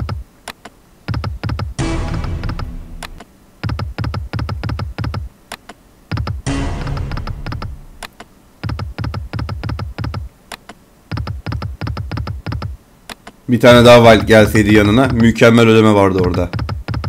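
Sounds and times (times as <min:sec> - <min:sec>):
ringing electronic jingle: 0:01.8 - 0:03.2, 0:06.5 - 0:08.0.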